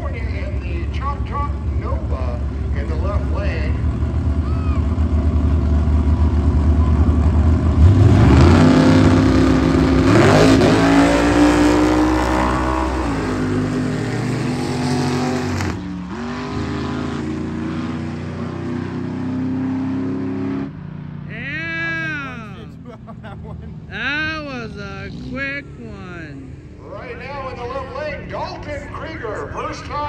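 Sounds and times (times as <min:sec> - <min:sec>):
drag race cars accelerating: 0:00.0 - 0:21.4.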